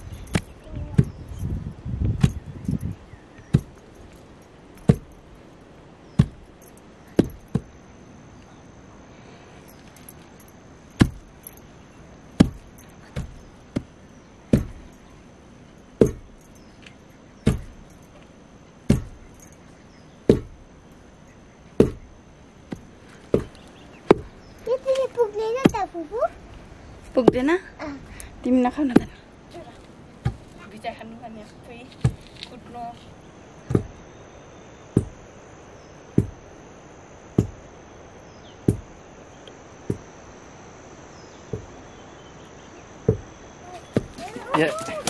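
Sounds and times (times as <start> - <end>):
wooden pestle thudding in mortar: 14.5 - 14.8, 16.0 - 16.3, 17.5 - 17.8, 18.9 - 19.2, 20.3 - 20.6, 21.8 - 22.0.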